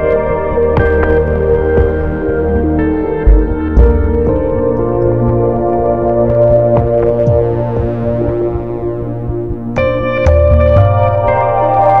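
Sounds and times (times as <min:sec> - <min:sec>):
synthesizer and keyboard chords: 0:00.0 - 0:12.0
steady low bass note: 0:02.9 - 0:11.6.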